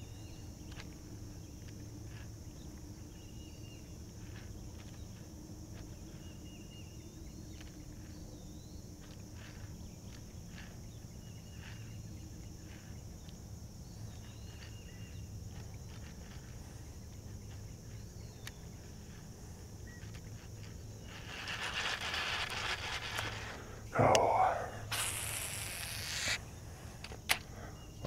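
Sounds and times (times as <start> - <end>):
high-pitched insect drone: 19.9 - 26.6.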